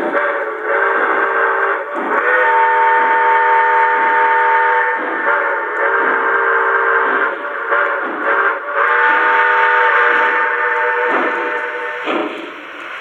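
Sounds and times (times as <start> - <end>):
steam whistle blasts: 0.0 - 13.0.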